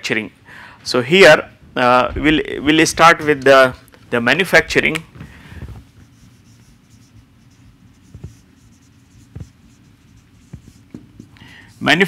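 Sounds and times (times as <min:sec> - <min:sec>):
low room hum: 0:00.0 - 0:12.0
marker scratching on whiteboard: 0:05.8 - 0:12.0.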